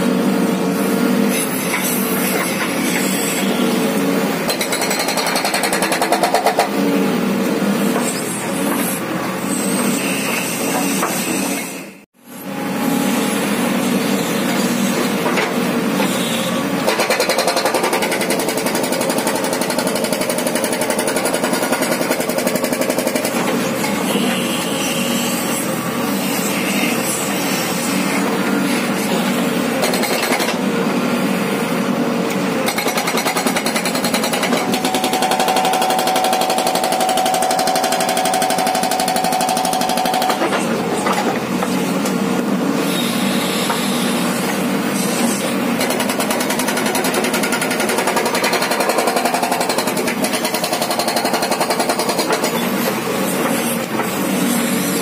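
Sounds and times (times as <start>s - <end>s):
backhoe engine: 0.0s - 55.0s
hydraulic rock breaker hammering: 4.4s - 6.8s, 16.8s - 24.6s, 29.7s - 30.6s, 32.6s - 42.2s, 45.5s - 55.0s.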